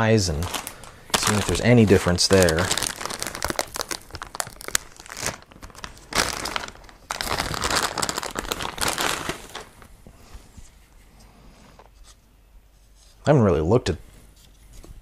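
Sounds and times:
plastic bag crinkling: 0:00.3 - 0:09.9.

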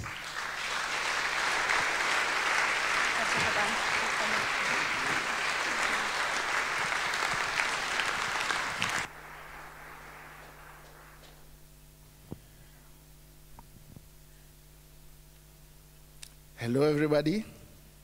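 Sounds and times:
audience applauding: 0:00.0 - 0:11.6
sound system hum: 0:00.0 - 0:18.0.

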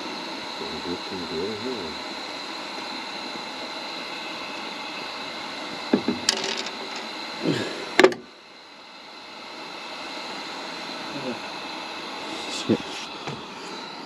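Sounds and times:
steady hiss: 0:00.0 - 0:05.7, 0:09.4 - 0:14.0.

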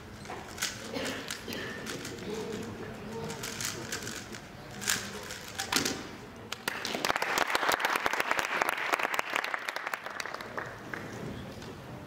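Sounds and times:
audience applauding: 0:06.6 - 0:11.0.

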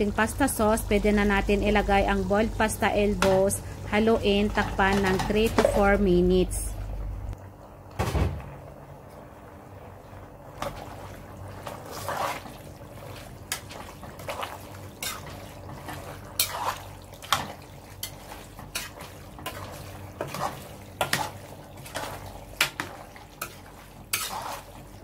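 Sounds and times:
steady low hum: 0:00.0 - 0:25.0
wet squelching stirring: 0:10.0 - 0:25.0.

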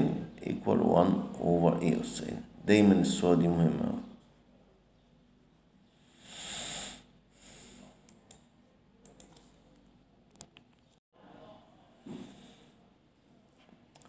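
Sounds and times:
close breathing: 0:06.0 - 0:08.0.

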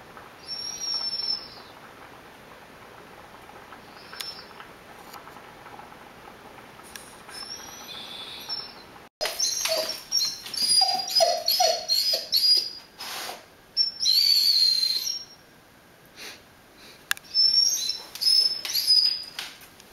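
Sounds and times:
dog whining: 0:00.4 - 0:01.7, 0:07.4 - 0:15.4, 0:17.3 - 0:19.4.

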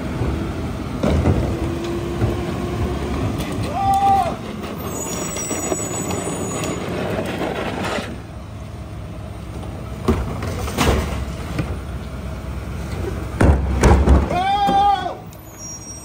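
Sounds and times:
garbage truck engine running: 0:00.0 - 0:14.3
trash knocks and bangs: 0:00.2 - 0:04.4, 0:10.0 - 0:11.8, 0:13.4 - 0:15.0.

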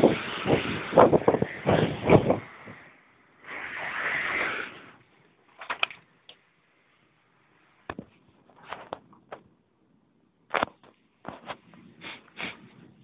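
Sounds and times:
blizzard wind hissing: 0:00.0 - 0:05.1.

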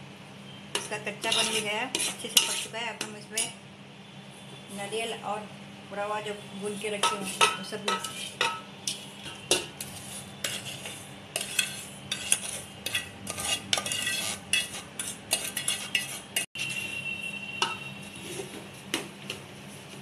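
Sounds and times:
spoon scraping and clinking in pot: 0:00.7 - 0:03.6, 0:07.0 - 0:18.6.

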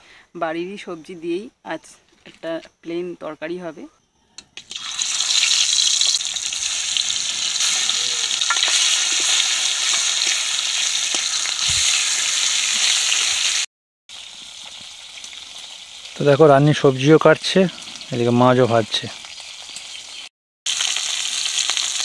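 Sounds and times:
fish frying in hot oil: 0:04.6 - 0:22.0.

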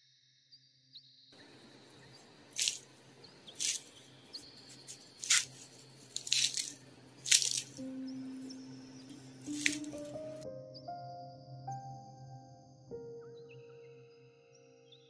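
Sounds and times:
puff pastry crunching: 0:02.5 - 0:07.8, 0:09.4 - 0:10.2.

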